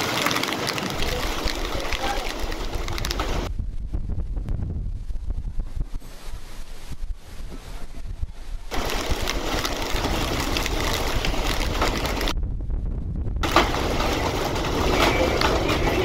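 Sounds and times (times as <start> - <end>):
rain and hail rattling: 0.0 - 3.9, 8.7 - 12.4, 13.4 - 16.0
gusting wind: 0.0 - 16.0.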